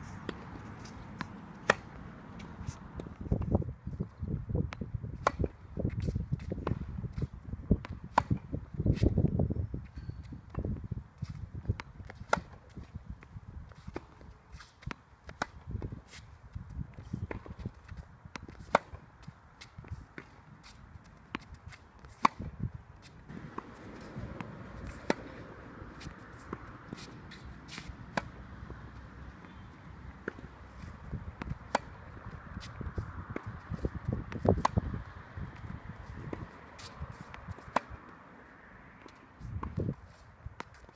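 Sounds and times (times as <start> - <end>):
tennis ball hitting racket strings: 0.1 - 3.5, 18.4 - 34.9, 35.6 - 38.2
steady rushing noise: 23.1 - 40.1.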